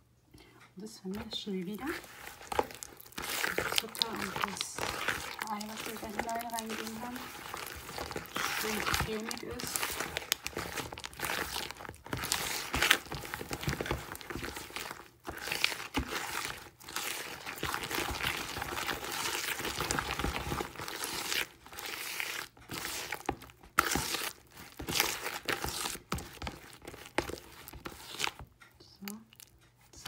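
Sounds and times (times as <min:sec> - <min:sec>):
hand squishing creamy mixture: 0:00.4 - 0:30.0.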